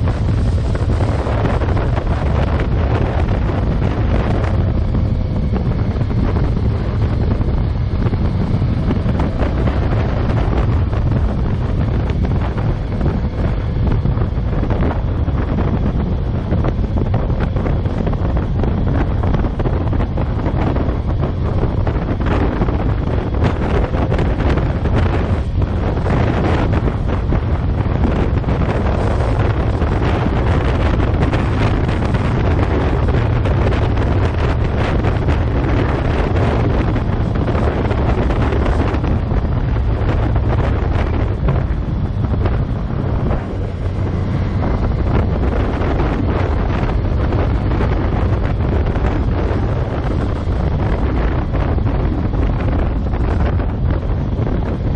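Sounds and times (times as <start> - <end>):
wind buffeting microphone: 0.0 - 54.9.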